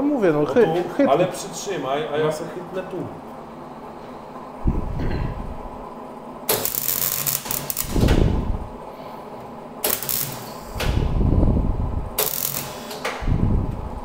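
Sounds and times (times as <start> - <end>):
loud low rumble: 4.6 - 5.8, 7.8 - 8.8, 10.8 - 12.2, 13.2 - 14.0
welder arc hissing: 6.5 - 8.7, 9.8 - 11.2, 12.2 - 13.2.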